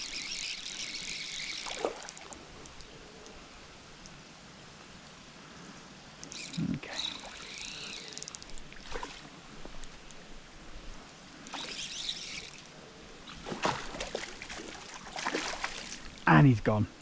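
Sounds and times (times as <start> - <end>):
water trickling: 0.0 - 2.9, 11.5 - 16.3
fish splashing at surface: 13.4 - 16.2.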